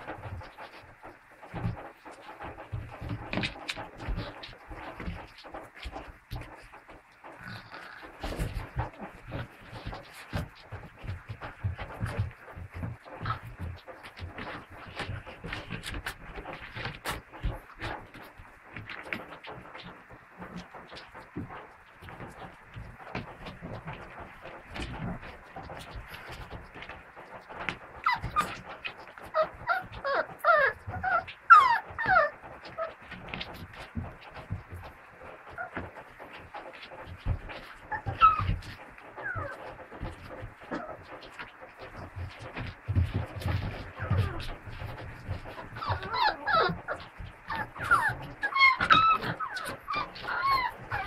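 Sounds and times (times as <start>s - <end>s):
paws scrabbling in a box: 0.0s - 51.0s
scuffling noises: 0.0s - 51.0s
puppies whining and yelping: 28.0s - 34.2s, 35.5s - 35.9s, 37.5s - 42.5s, 43.1s - 51.0s.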